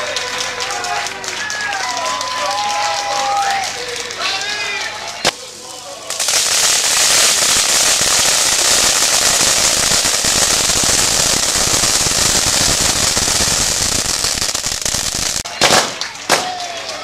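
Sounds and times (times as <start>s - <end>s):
fireworks hissing crackle: 3.3s - 16.6s.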